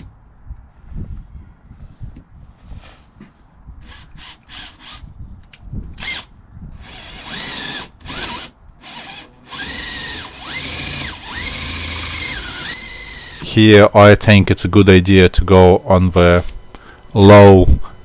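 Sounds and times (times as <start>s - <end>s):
cordless drill motor whine: 3.8s - 5.3s, 5.9s - 13.8s, 15.6s - 18.0s.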